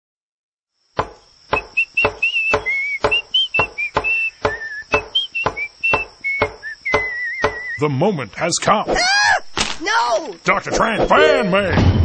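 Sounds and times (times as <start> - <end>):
hammer knocking nails into wood: 1.0 - 7.7
person whistling a tune: 1.6 - 7.8.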